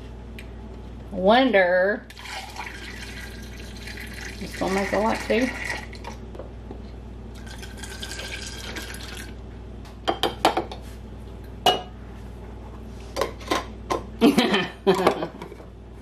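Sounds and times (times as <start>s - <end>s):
liquid pouring into glass jar: 2.1s - 6.1s, 7.4s - 9.3s.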